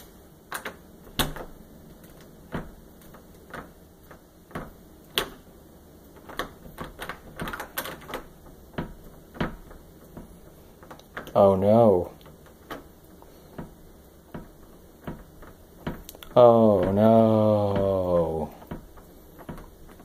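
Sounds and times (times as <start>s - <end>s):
doorknob and latch rattling: 0.5s - 5.5s, 6.1s - 11.4s, 12.0s - 20.0s
stuck wooden door knocking: 2.4s - 5.4s, 6.2s - 10.5s, 12.4s - 20.0s.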